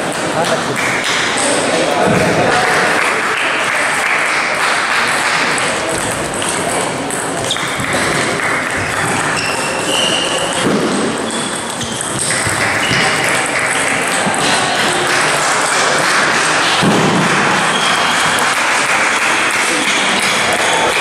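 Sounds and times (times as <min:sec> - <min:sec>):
table tennis balls clicking: 0:05.1 - 0:21.0.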